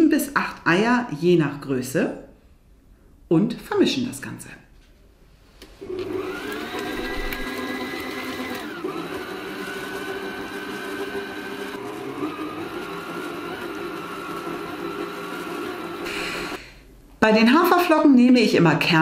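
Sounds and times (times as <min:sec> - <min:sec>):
stand mixer motor whine: 0:05.8 - 0:16.6.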